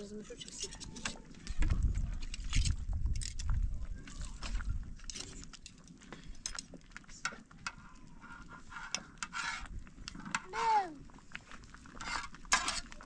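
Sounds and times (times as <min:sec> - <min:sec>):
metal spoon scraping a pan: 0:00.3 - 0:01.2, 0:07.7 - 0:10.7, 0:11.9 - 0:13.0
small knocks and rubbing: 0:07.3 - 0:10.6, 0:11.9 - 0:13.0.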